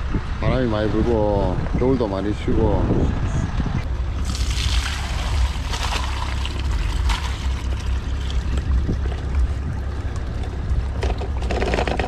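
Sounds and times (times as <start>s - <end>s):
wind on microphone: 0.0s - 6.0s, 8.2s - 11.8s
water pouring onto ground: 4.2s - 10.9s.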